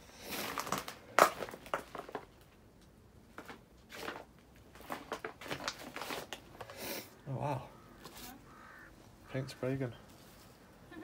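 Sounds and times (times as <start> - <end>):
paper rustling and crunching: 3.4 - 6.8.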